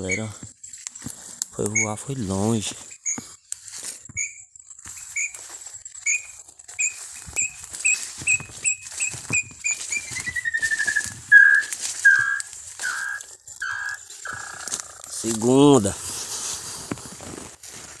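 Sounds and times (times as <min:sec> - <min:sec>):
bird whistled notes and trill: 0:00.0 - 0:00.4, 0:01.7 - 0:02.2, 0:02.8 - 0:03.3, 0:04.1 - 0:14.7
footsteps rustling through leaves: 0:00.0 - 0:18.0.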